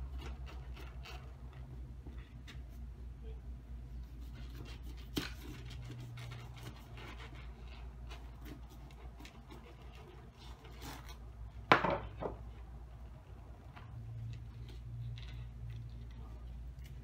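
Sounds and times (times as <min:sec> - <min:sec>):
knife scraping fruit rind: 0:00.0 - 0:02.9, 0:03.9 - 0:11.6
low steady hum: 0:00.0 - 0:17.0.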